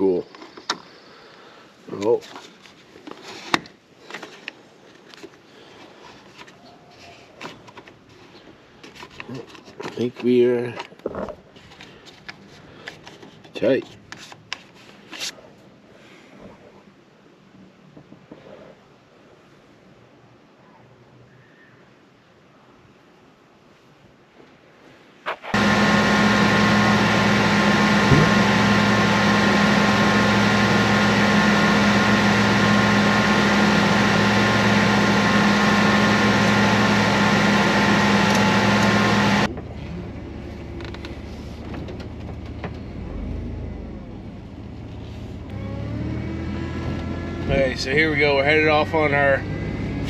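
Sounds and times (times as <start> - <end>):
van engine running: 25.5 - 50.0.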